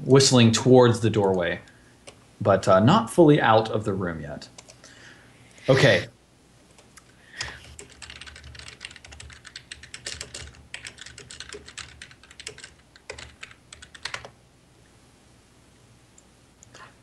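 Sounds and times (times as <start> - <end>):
typing on computer keyboard: 6.8 - 14.4.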